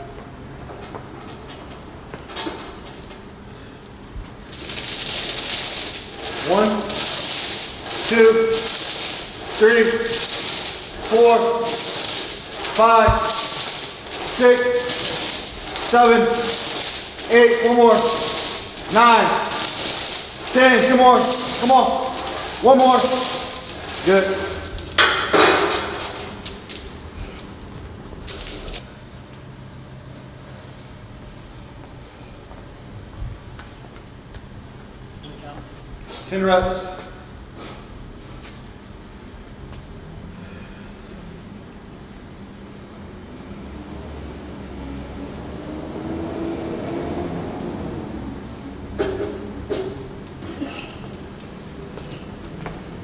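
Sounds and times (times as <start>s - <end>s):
steel chains jangling and clinking: 4.4s - 28.8s, 50.4s - 53.0s.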